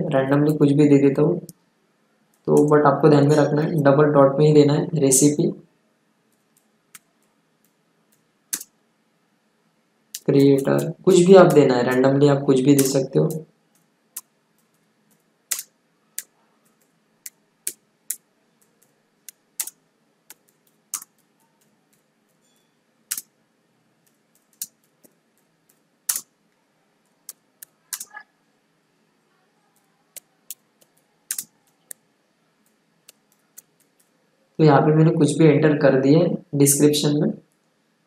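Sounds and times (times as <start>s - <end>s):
keyboard keystroke clicks: 17.7s - 22.0s, 29.8s - 32.0s.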